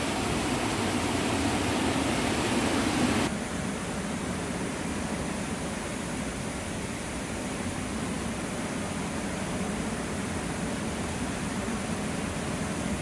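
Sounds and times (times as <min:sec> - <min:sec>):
waterfall and rapids rushing: 0:00.0 - 0:03.7.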